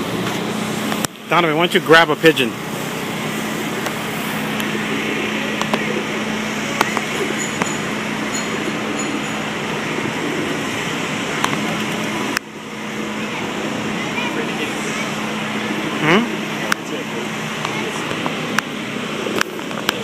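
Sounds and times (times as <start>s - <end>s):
traffic noise: 0.0s - 20.0s.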